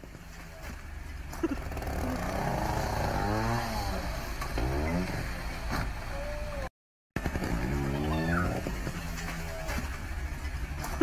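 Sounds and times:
small motorbike engine revving: 1.5s - 5.4s, 7.2s - 8.8s.

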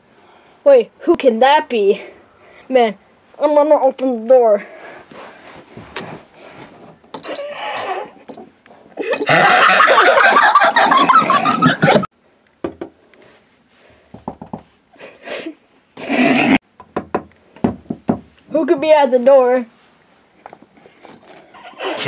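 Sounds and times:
person's rough vocal noise: 16.0s - 16.6s, 21.5s - 22.0s.

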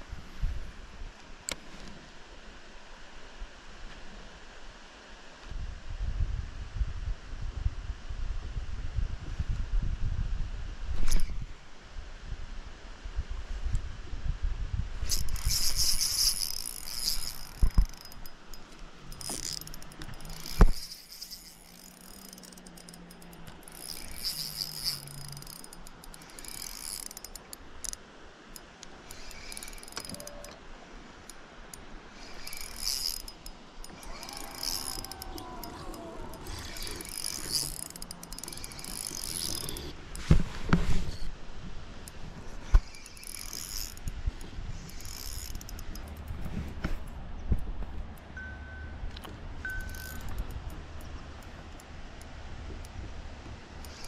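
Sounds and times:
fishing reel whirring: 15.0s - 28.0s, 29.0s - 30.6s, 31.2s - 40.0s, 42.6s - 46.3s, 49.6s - 51.1s, 53.8s - 54.0s
rod and reel knocking: 15.1s - 28.0s, 28.6s - 30.6s, 31.2s - 40.0s, 42.6s - 44.2s, 44.8s - 46.5s, 49.6s - 51.9s, 53.8s - 54.0s.

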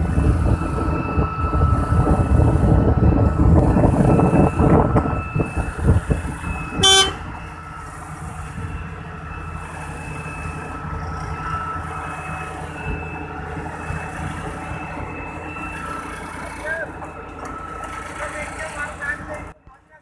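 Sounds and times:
diesel engine running: 0.0s - 20.0s
short horn toot: 6.8s - 7.3s.

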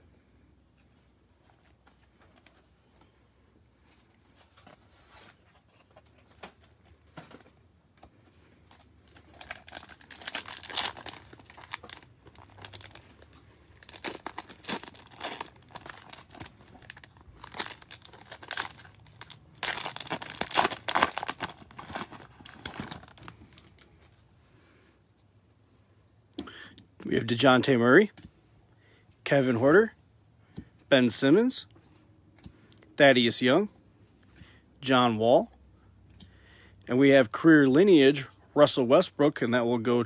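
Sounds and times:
wrapper crinkling: 8.7s - 23.8s.

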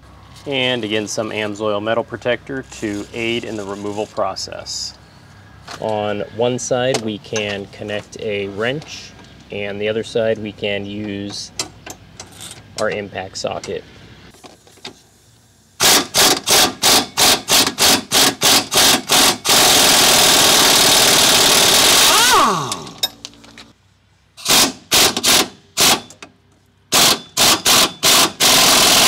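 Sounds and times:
impact wrench hammering: 15.8s - 23.2s
impact wrench falling whine: 15.8s - 23.7s.

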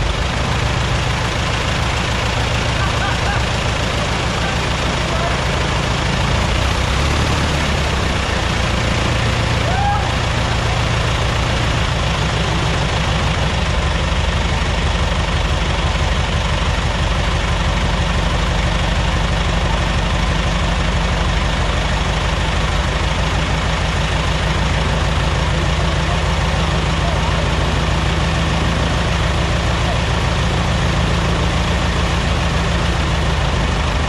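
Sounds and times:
light aircraft engine running: 0.0s - 34.0s.

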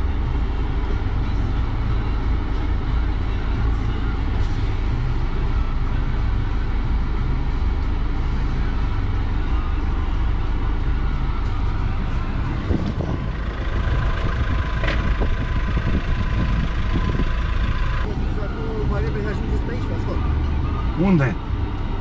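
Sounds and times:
car engine running at low speed: 0.0s - 22.0s.

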